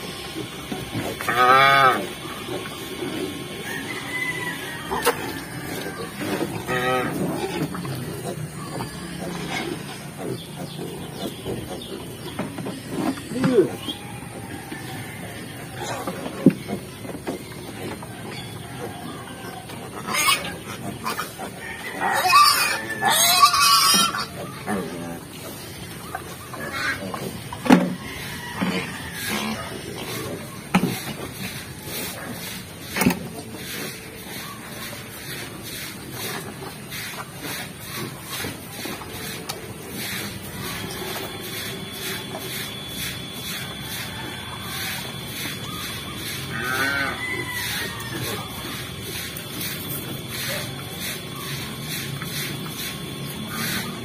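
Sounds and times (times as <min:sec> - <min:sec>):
farm animals calling: 0:00.0 - 0:54.0
pigs chewing and snuffling: 0:00.0 - 0:54.0
pulsing hiss: 0:29.1 - 0:54.0.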